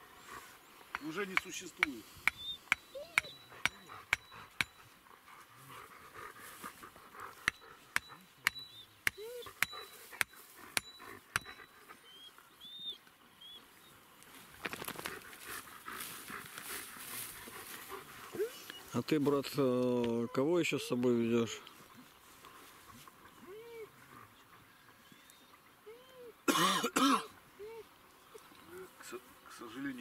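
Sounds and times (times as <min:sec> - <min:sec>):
hammer striking tent stakes: 0:03.6 - 0:04.8, 0:07.4 - 0:11.6.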